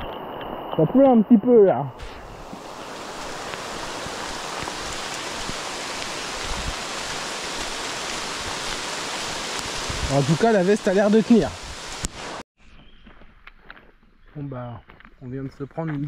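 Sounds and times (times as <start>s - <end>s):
steady rain hiss: 0.0s - 12.4s.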